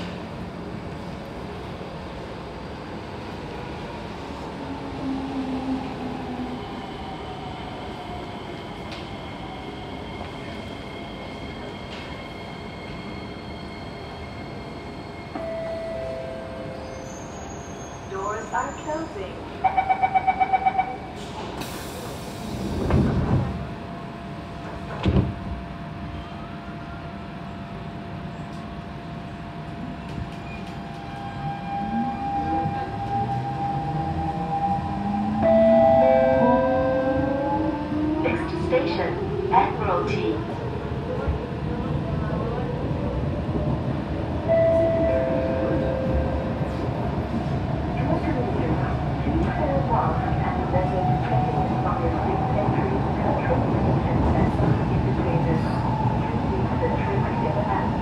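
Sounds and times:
metro train humming: 0:00.0 - 0:58.0
train doors sliding shut: 0:21.1 - 0:23.7, 0:24.6 - 0:25.6.

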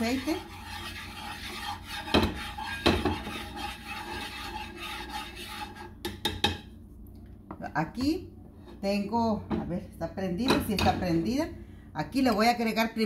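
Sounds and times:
spatula scraping frying pan: 0:00.0 - 0:06.0
spatula knocking against pan: 0:02.0 - 0:03.5, 0:06.0 - 0:06.7.

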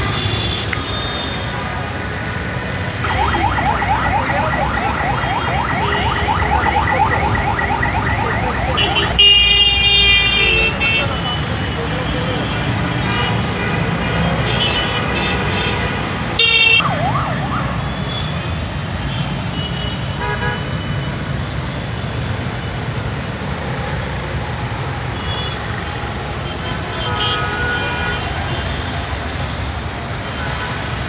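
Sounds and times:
traffic on wet road: 0:00.0 - 0:31.0
siren wail: 0:02.2 - 0:09.6, 0:16.7 - 0:18.4.

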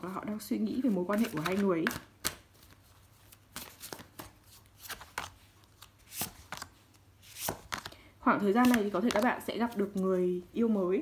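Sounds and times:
cards swishing: 0:01.2 - 0:07.9.

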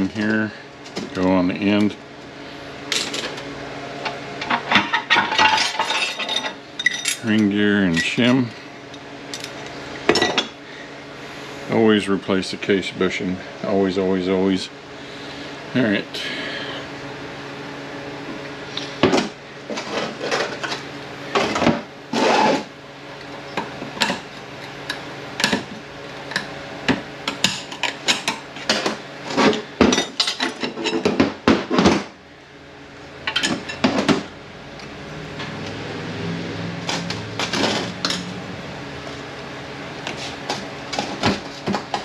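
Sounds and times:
low steady hum: 0:00.0 - 0:42.0
steel parts clinking and clanking: 0:04.4 - 0:08.2.

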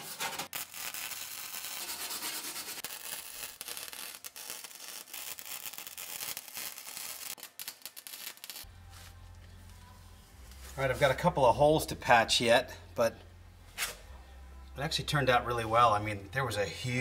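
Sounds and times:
welding arc crackling: 0:00.1 - 0:08.7.

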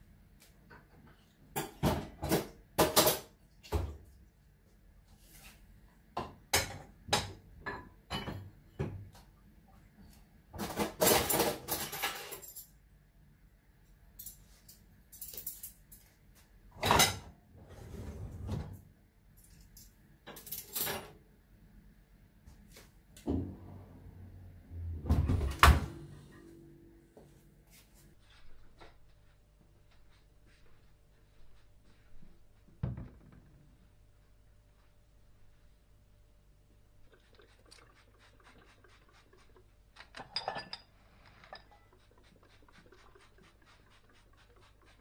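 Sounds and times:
knocks and thuds: 0:32.8 - 0:33.5.

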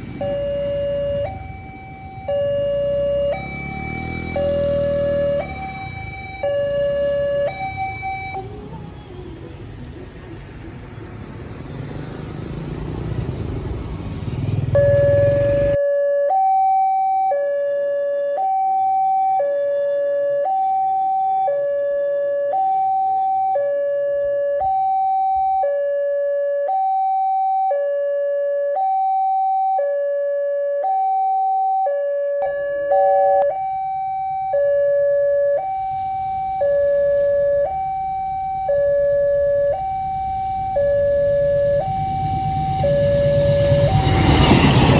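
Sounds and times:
two-tone crossing alarm: 0:00.0 - 0:08.6, 0:14.6 - 0:44.9
road traffic noise: 0:00.0 - 0:44.9
approaching train rush: 0:40.3 - 0:44.9.

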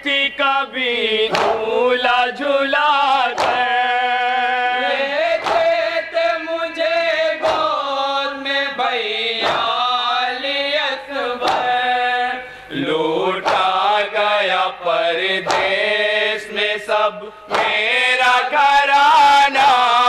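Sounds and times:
men singing in unison: 0:00.0 - 0:20.0
hands beating chests: 0:01.3 - 0:08.1, 0:09.3 - 0:10.5, 0:11.3 - 0:12.0, 0:12.8 - 0:16.6, 0:17.5 - 0:19.8.

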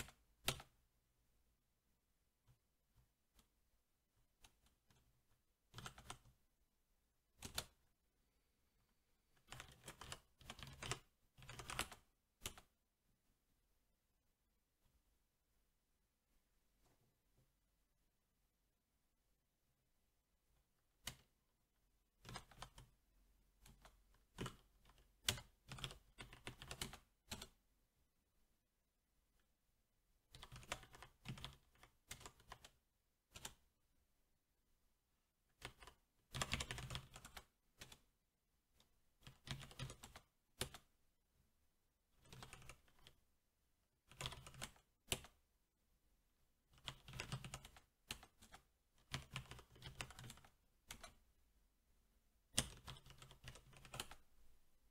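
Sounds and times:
mechanical keyboard typing: 0:00.0 - 0:00.7, 0:05.7 - 0:06.4, 0:07.4 - 0:07.8, 0:09.4 - 0:12.8, 0:22.2 - 0:23.0, 0:23.6 - 0:27.6, 0:30.3 - 0:33.6, 0:35.6 - 0:38.0, 0:39.2 - 0:40.9, 0:42.2 - 0:43.2, 0:44.1 - 0:45.4, 0:46.8 - 0:51.2, 0:52.5 - 0:54.2.

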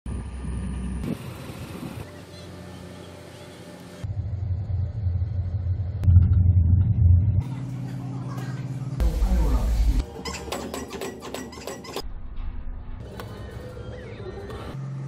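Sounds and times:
ship engine low rumble: 0:00.1 - 0:02.1, 0:03.8 - 0:10.0.

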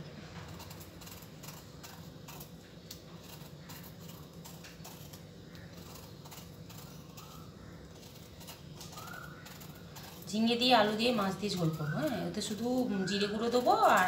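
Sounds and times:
faint low hum: 0:00.0 - 0:14.0
knife scraping gourd skin: 0:00.0 - 0:14.0.

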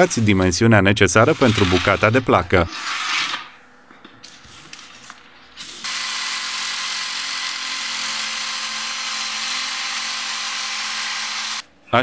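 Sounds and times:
electric jigsaw sawing board: 0:05.8 - 0:11.6.

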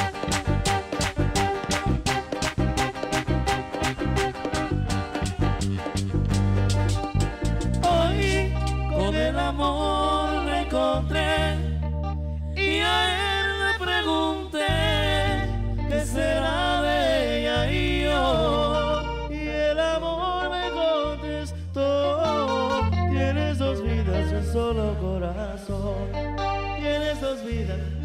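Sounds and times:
acoustic guitar: 0:00.0 - 0:28.0
electric bass: 0:00.0 - 0:28.0
man singing into a microphone: 0:07.8 - 0:11.8, 0:12.6 - 0:28.0.

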